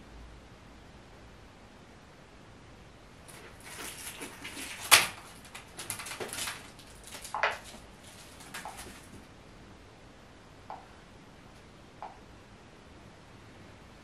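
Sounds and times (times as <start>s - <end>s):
kitten scuffling on carpet: 3.3s - 9.3s.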